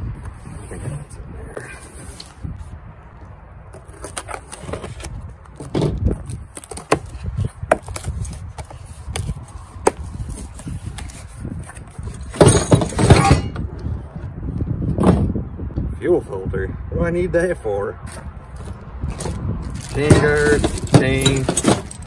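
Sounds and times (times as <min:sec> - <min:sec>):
wind rumble on microphone: 0:00.0 - 0:22.0
bagged parts tumbling out: 0:18.6 - 0:22.0
rustling plastic and bubble wrap: 0:19.1 - 0:21.0.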